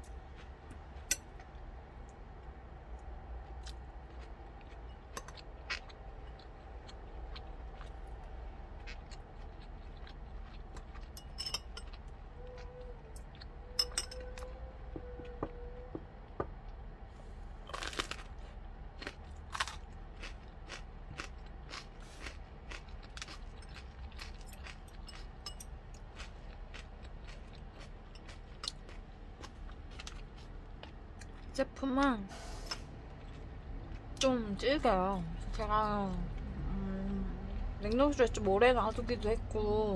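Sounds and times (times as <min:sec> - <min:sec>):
person chewing crunchy vegetable: 0:03.3 - 0:14.5, 0:17.6 - 0:31.6, 0:32.9 - 0:34.5
metal utensils clinking: 0:11.2 - 0:11.9, 0:13.8 - 0:14.3.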